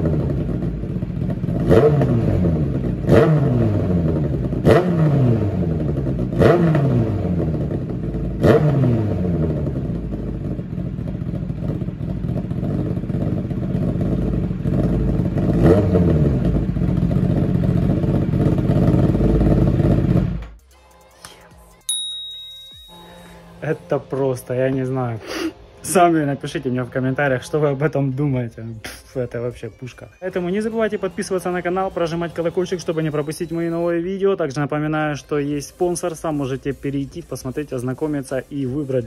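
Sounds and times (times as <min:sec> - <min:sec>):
motorcycle engine idling and revving: 0:00.0 - 0:20.6, 0:30.3 - 0:39.0
quiet music: 0:20.6 - 0:39.0
bright ringing sting: 0:21.8 - 0:23.9.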